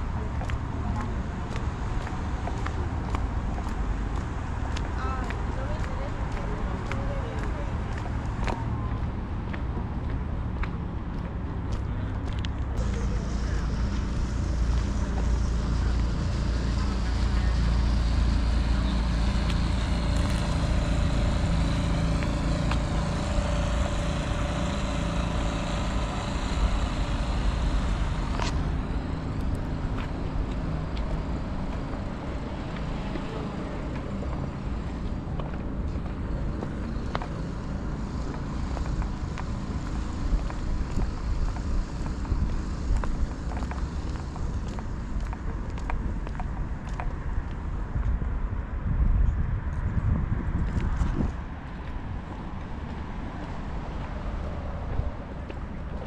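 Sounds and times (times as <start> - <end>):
hum of traffic: 0.0 - 56.0
heavy vehicle rumbling past: 12.6 - 46.2.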